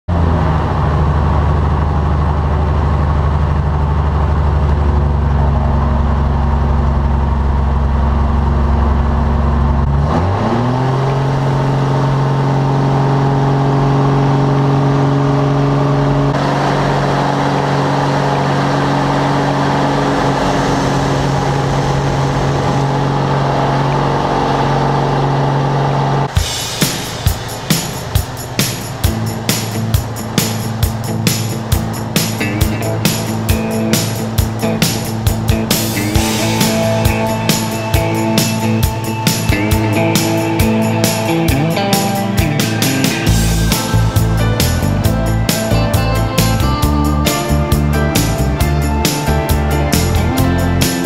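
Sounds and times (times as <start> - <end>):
aircraft engine and propeller drone: 0.1 - 9.9, 10.9 - 51.0.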